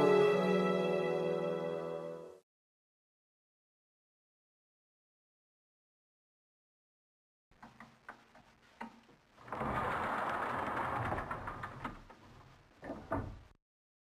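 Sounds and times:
metal rolling shutter rattling: 0:09.4 - 0:12.5.

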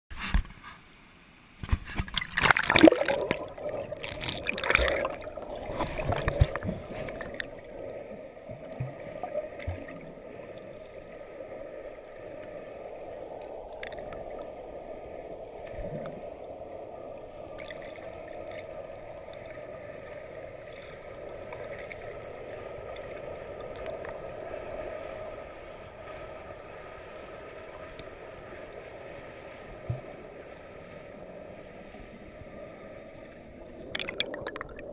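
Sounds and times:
muffled underwater rapids rush: 0:00.1 - 0:34.9
water splashing and sloshing: 0:01.6 - 0:34.9
bubbles streaming: 0:02.1 - 0:10.6, 0:33.8 - 0:34.9.

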